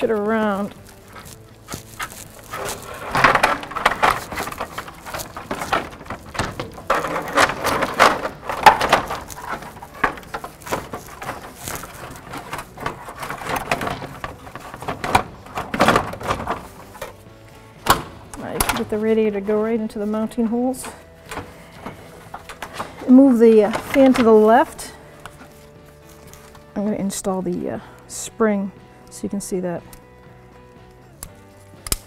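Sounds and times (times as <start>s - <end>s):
radiator scraping past car parts: 0.0s - 17.2s.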